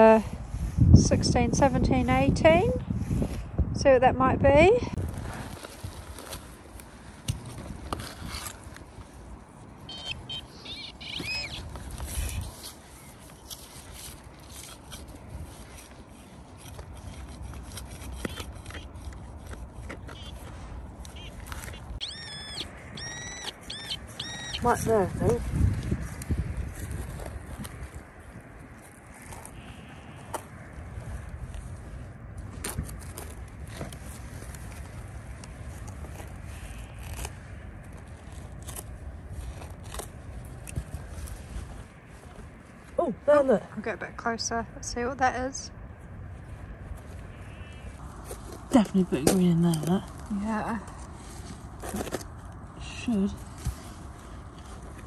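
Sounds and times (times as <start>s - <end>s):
wind rumbling on microphone: 0.0s - 55.0s
spade digging soil: 11.2s - 22.1s, 47.4s - 55.0s.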